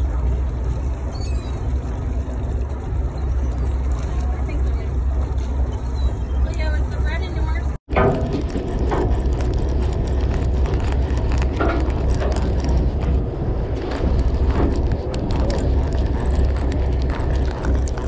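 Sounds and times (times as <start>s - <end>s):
boat engine rumble: 0.0s - 18.0s
wind on microphone: 7.9s - 18.0s.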